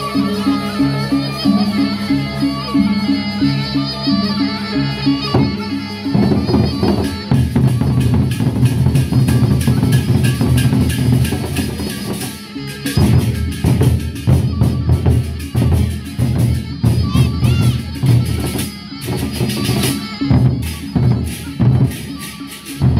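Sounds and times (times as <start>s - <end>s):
ringing pitched notes: 0.0s - 22.9s
barrel drums beaten with sticks: 5.4s - 12.3s.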